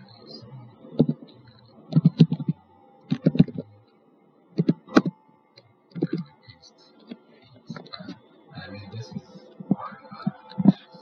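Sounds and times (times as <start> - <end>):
keyboard keystrokes and clicks: 1.9 - 3.7, 4.6 - 5.2.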